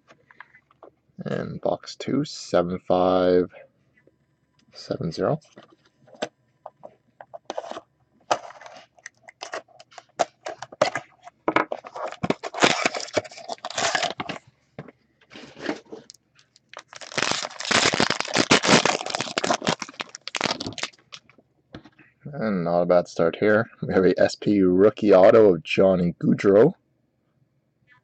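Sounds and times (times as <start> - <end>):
plastic wrap and cardboard crinkling: 7.5 - 14.5, 15.3 - 21.3
foil pack tearing open: 11.9 - 14.4, 16.7 - 21.2.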